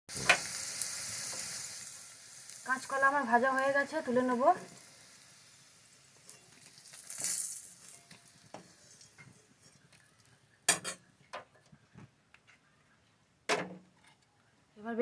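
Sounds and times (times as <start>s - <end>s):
hot oil hissing: 0.1s - 10.3s.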